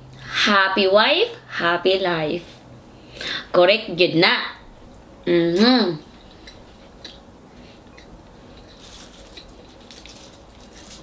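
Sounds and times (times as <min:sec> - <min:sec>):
soft chewing: 0:06.1 - 0:11.0
salad greens rustling: 0:07.6 - 0:11.0.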